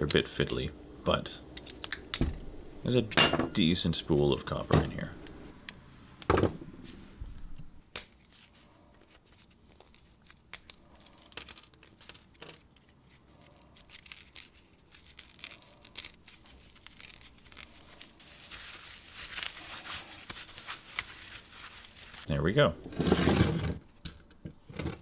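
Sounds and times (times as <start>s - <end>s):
tape tearing and crinkling: 8.0s - 22.3s.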